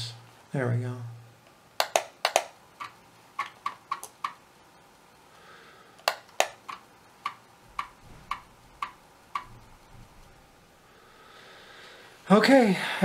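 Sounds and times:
floppy drive head ticking: 6.1s - 9.9s.

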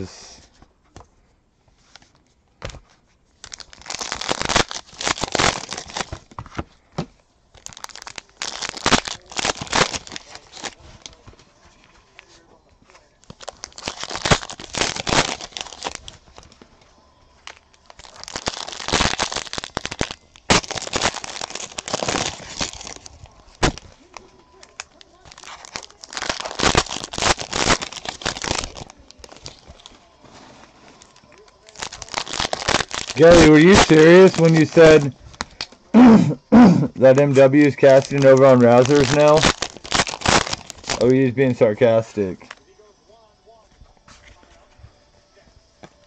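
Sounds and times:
foil wrappers crinkling and tearing: 3.4s - 6.6s, 7.5s - 16.6s, 17.4s - 36.1s, 36.8s - 42.6s.

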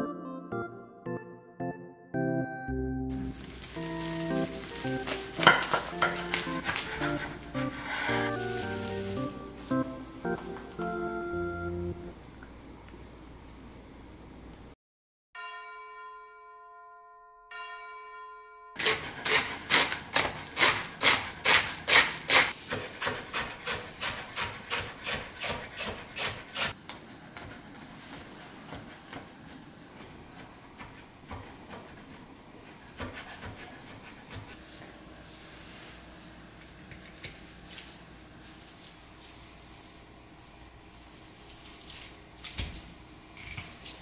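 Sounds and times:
held musical tone: 0.0s - 12.4s
knife chopping on wooden board: 4.7s - 8.8s, 18.8s - 26.7s, 30.3s - 34.6s.

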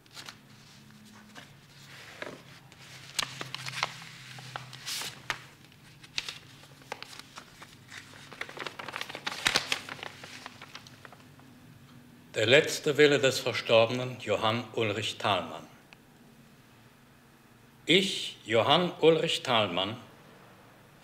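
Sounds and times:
paper rustling and crinkling: 0.0s - 11.4s.

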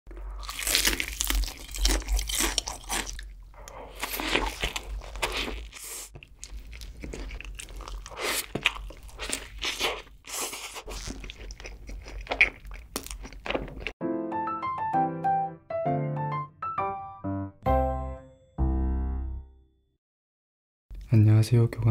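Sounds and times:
chewing: 0.1s - 14.0s
crunchy bites into fried chicken: 0.4s - 3.3s
light piano music: 14.0s - 19.7s.

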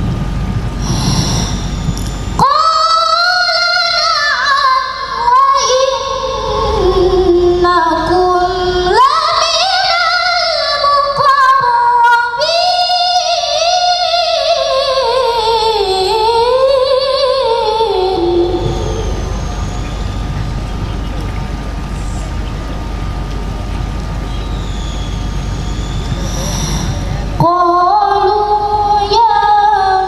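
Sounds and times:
steady low rumble: 0.0s - 9.1s, 16.2s - 29.4s
woman reciting melodically: 2.4s - 20.2s, 26.3s - 30.0s.

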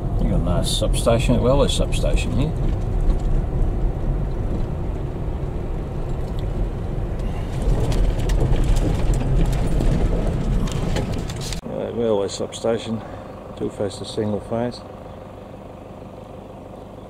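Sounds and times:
car engine and road rumble: 0.0s - 17.0s
tyres crackling on gravel: 2.4s - 11.6s.

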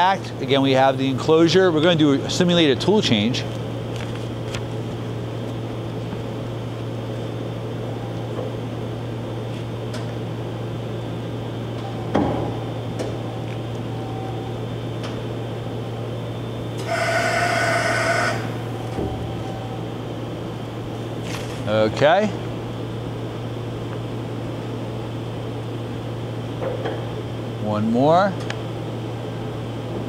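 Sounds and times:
machine low hum: 0.0s - 30.0s
loud tonal air hiss: 16.8s - 18.9s.

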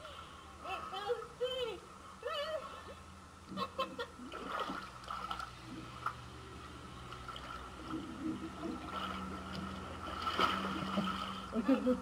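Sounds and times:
pool water lapping and gurgling: 3.9s - 12.0s
water drips and splashes: 8.9s - 11.4s.

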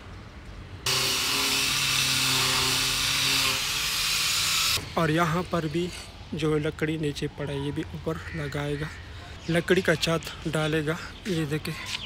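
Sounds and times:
miter saw cutting wood: 0.9s - 4.9s.

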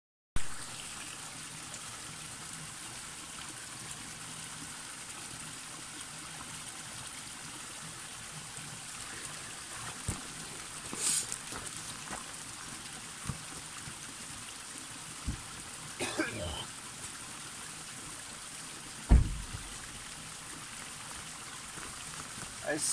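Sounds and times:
water trickling down rock: 0.5s - 22.9s
water splashes and knocks: 9.8s - 14.0s, 15.2s - 16.2s, 19.0s - 22.6s.

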